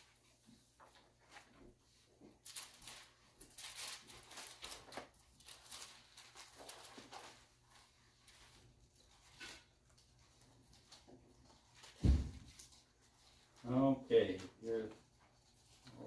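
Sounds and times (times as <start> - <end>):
thin pages rustling: 0.2 - 16.0.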